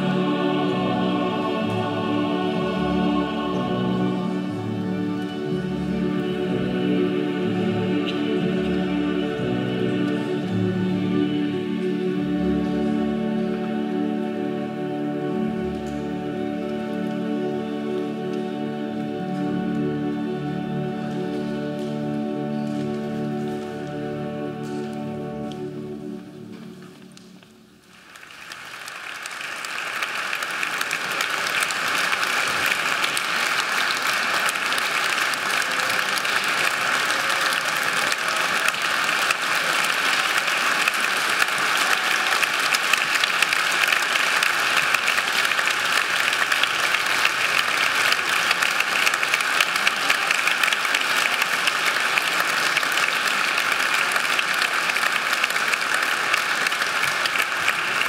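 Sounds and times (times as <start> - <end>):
audience applauding: 27.2 - 58.0.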